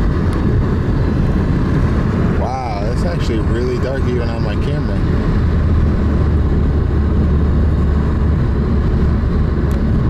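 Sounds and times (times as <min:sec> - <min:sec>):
car road and engine noise: 0:00.0 - 0:10.0.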